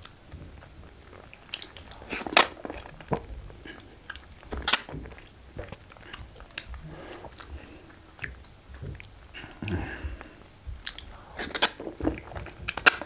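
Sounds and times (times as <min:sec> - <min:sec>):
wet chewing and lip smacks: 0:00.0 - 0:13.0
loud sharp mouth sounds: 0:01.5 - 0:03.0, 0:05.6 - 0:13.0.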